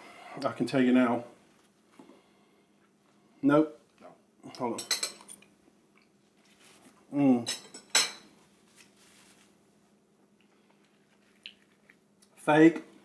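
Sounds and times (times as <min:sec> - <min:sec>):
tableware clinking: 0:04.8 - 0:05.4, 0:07.5 - 0:08.3
faint handling sounds: 0:06.2 - 0:07.1, 0:08.0 - 0:12.0.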